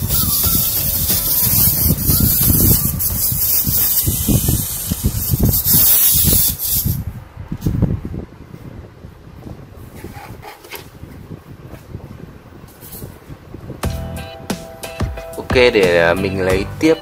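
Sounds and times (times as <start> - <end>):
clockwork spring whirring: 0.0 - 7.0.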